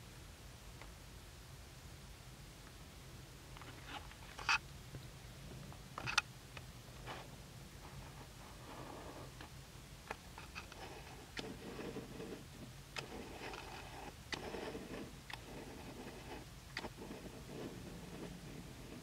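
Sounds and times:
low steady hum: 0.0s - 19.0s
soft rubbing: 10.4s - 19.0s.

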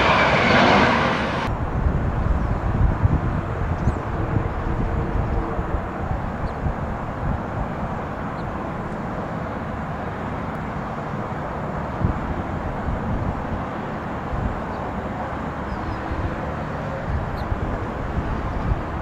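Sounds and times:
gusty low rumble: 0.0s - 9.2s
jet aircraft rumble: 0.0s - 19.0s.

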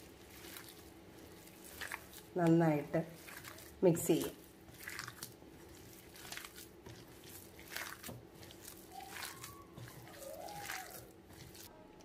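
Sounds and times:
hand squelching wet mince: 0.0s - 11.7s.

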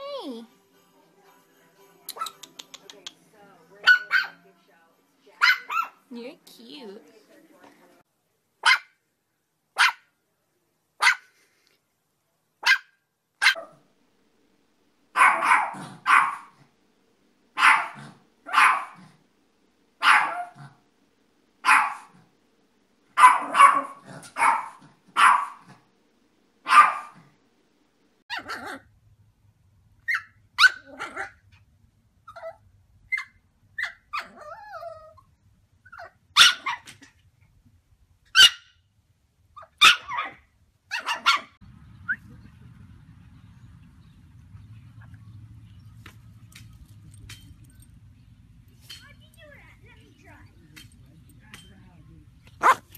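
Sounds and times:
faint low hum: 0.0s - 52.9s
small dogs barking: 3.8s - 4.4s, 5.4s - 6.1s, 8.6s - 9.0s, 9.8s - 10.1s, 11.0s - 11.3s, 12.6s - 13.9s, 15.1s - 16.7s, 17.6s - 19.2s, 20.0s - 20.8s, 21.6s - 22.3s, 23.1s - 25.8s, 26.6s - 27.3s, 28.3s - 28.9s, 30.1s - 31.5s, 32.3s - 35.1s, 35.9s - 37.2s, 38.3s - 38.8s, 39.6s - 42.2s, 52.5s - 52.9s
dog whining: 33.2s - 35.3s, 52.6s - 52.9s.

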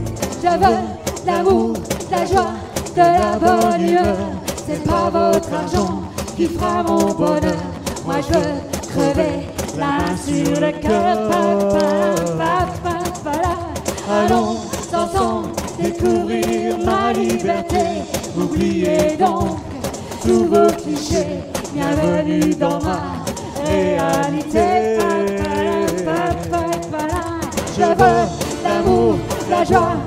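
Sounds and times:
backing track: 0.0s - 30.0s
person singing: 0.0s - 30.0s
rattling percussion beat: 0.0s - 30.0s.

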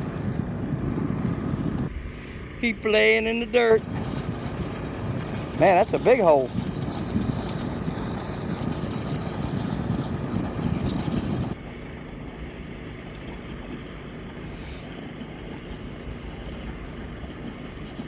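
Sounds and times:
engine and pump running: 0.0s - 18.0s.

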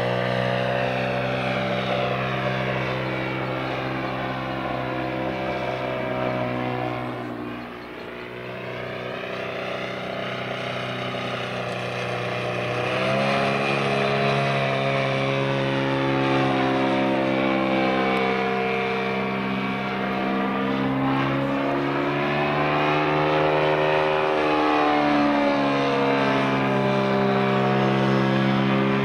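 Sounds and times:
model airplane engine in flight: 0.0s - 29.0s.

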